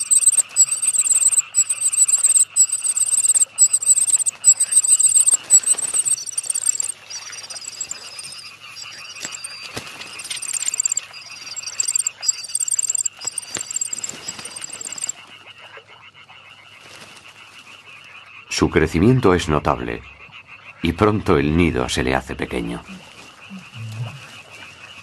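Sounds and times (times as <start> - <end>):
cuckoo chick begging calls: 0.0 - 15.1.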